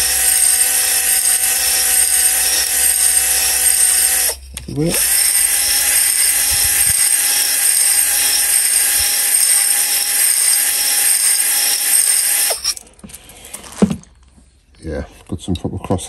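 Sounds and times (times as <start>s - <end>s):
drill with hone grinding metal: 0.0s - 12.8s.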